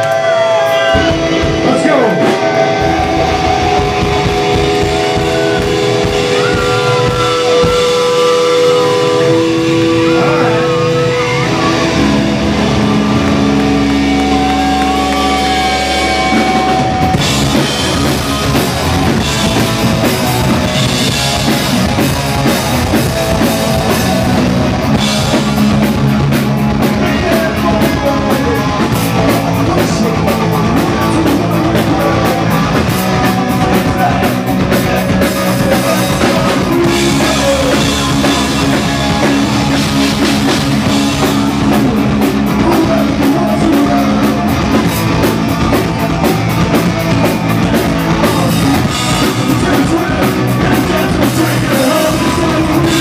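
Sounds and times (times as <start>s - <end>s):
bass guitar: 0.0s - 53.0s
drum kit: 0.0s - 53.0s
electric guitar: 0.0s - 53.0s.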